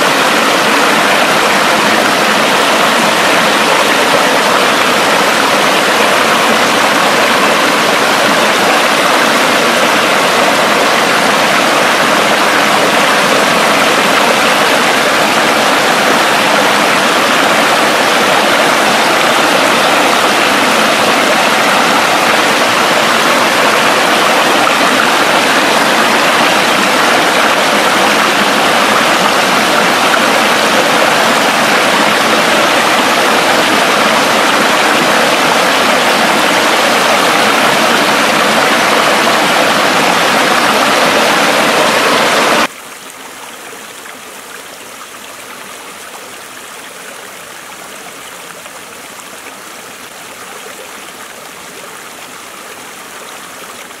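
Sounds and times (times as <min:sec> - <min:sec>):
water running over rock: 0:00.0 - 0:43.1
waterfall rushing: 0:00.0 - 0:54.0.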